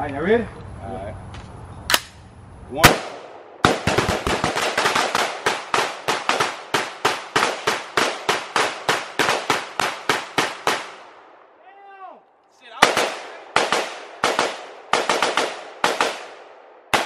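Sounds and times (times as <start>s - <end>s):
rapid rifle shots: 2.8s - 11.1s, 12.8s - 17.0s.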